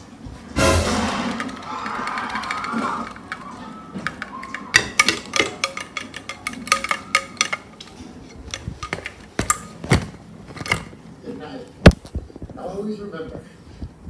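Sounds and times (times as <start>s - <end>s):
plastic doll clicking and knocking: 1.3s - 11.0s.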